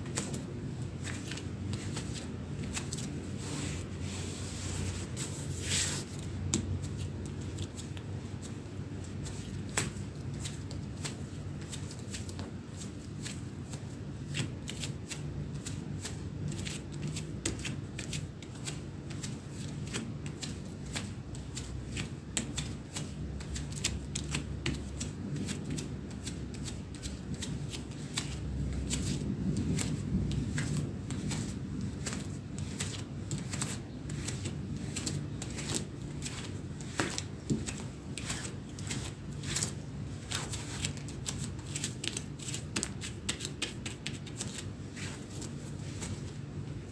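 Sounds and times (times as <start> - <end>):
denim rustling: 0.0 - 46.9
bare footsteps on parquet: 26.7 - 46.4.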